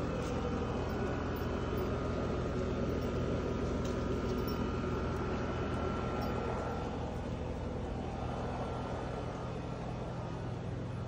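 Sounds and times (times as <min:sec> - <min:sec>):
faint high whine: 0:00.0 - 0:11.0
low mechanical hum: 0:00.0 - 0:11.0.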